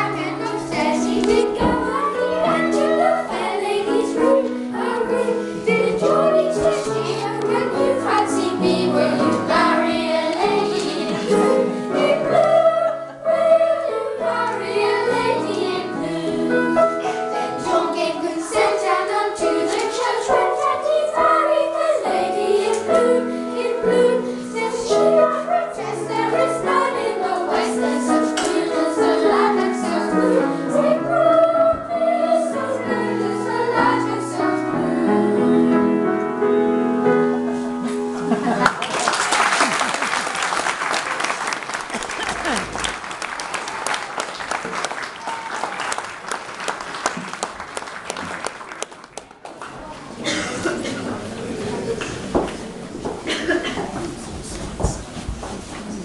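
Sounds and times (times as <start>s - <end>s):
children's choir singing: 0.0s - 36.5s, 50.0s - 54.7s.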